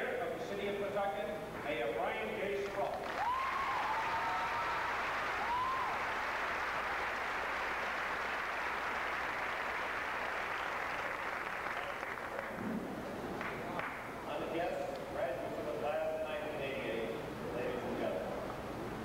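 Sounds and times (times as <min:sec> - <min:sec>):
audience applauding: 0:02.6 - 0:12.7, 0:13.3 - 0:14.1
people whooping: 0:03.0 - 0:07.4.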